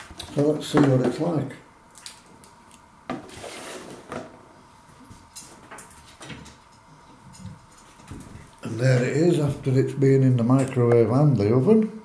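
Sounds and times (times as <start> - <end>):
items rustling: 3.1 - 4.4.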